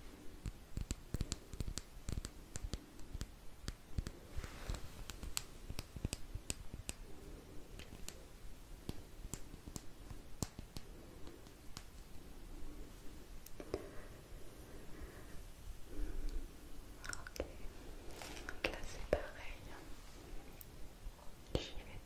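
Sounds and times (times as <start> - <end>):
soft brush swish: 4.1 - 6.8.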